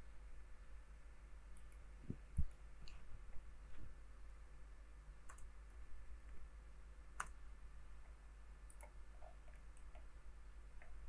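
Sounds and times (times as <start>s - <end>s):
low steady hum: 0.0s - 11.0s
computer mouse clicks: 1.5s - 3.0s, 5.2s - 5.6s, 7.1s - 7.4s, 8.0s - 10.1s.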